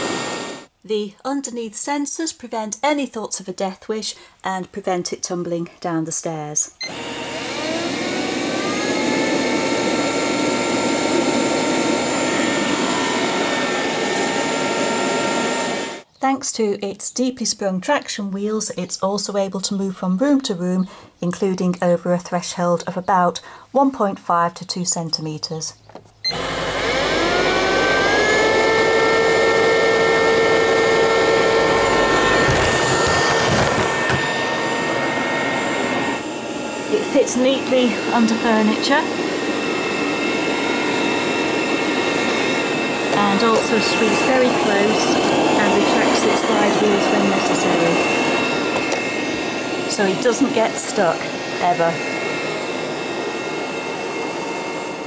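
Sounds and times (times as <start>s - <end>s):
robot vacuum cleaner whirring: 0.0s - 0.7s, 6.8s - 16.0s, 26.3s - 55.0s.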